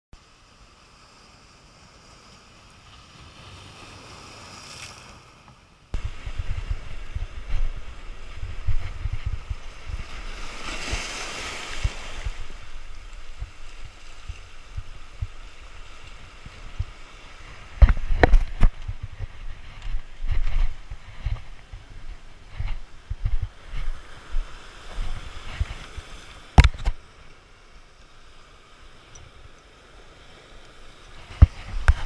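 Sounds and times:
surf on rocky shore: 0.2 - 32.0
wind buffeting microphone: 6.0 - 27.0.

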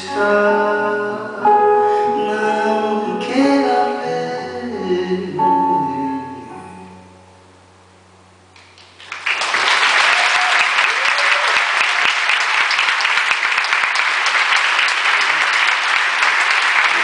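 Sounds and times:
audience applause: 8.6 - 17.0.

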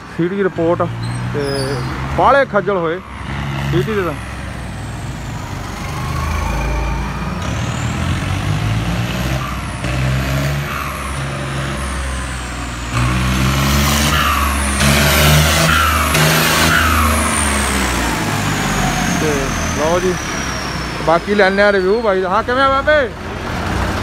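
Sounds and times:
tractor diesel engine revving: 0.0 - 24.0
turbo whistling: 14.0 - 22.5.

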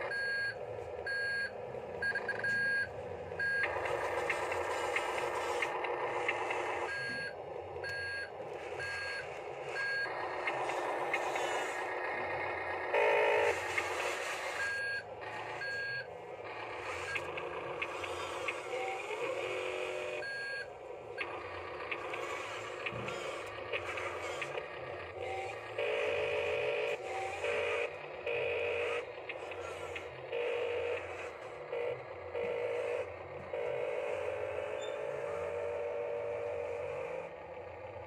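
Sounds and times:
toy electric drive whirring: 21.2 - 37.2.

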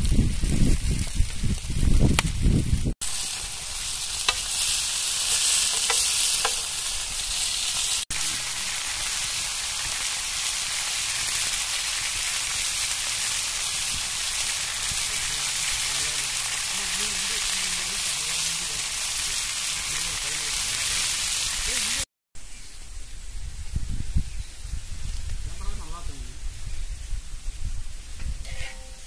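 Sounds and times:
fish sizzling in oil: 0.0 - 22.1.

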